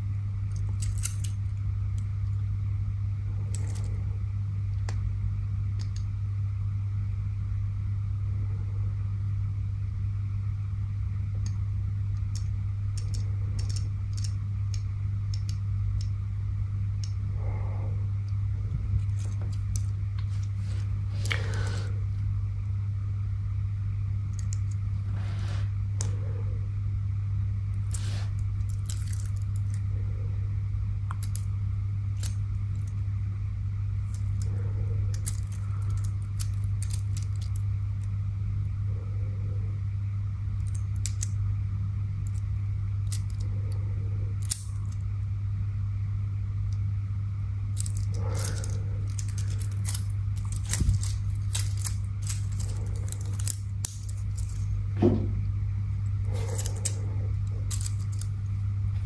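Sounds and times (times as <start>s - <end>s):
steady low hum: 0.0s - 59.0s
metal watch bracelet clinking: 47.8s - 54.7s, 56.3s - 58.4s.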